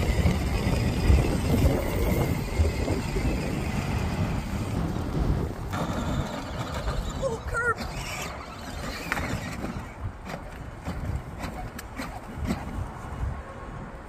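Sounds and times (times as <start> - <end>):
toy car wheels rumbling on asphalt: 0.0 - 13.4.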